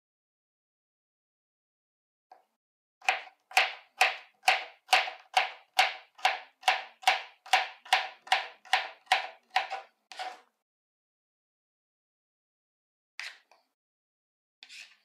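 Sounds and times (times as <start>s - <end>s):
knife chopping on plastic board: 3.0s - 10.4s.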